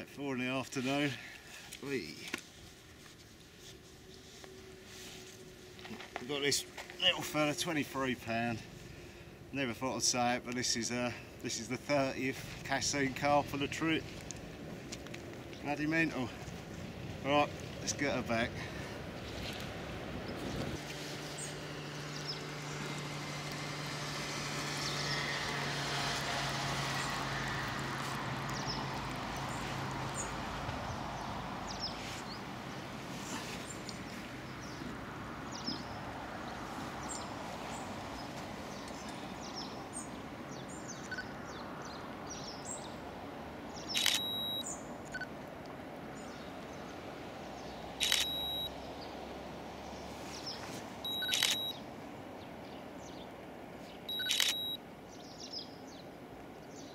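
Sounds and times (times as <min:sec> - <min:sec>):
outdoor background: 0:00.0 - 0:56.9
camera shutter firing: 0:54.2 - 0:54.7.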